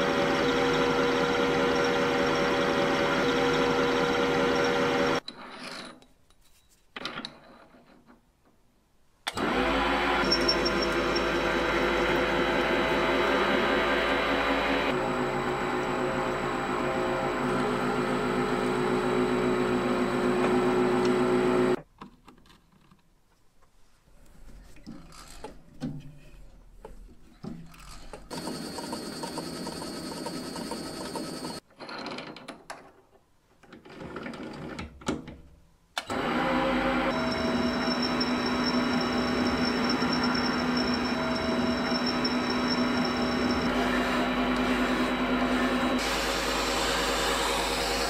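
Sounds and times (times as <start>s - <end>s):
metal lathe whining: 0.0s - 5.2s, 9.3s - 21.8s, 36.1s - 48.0s.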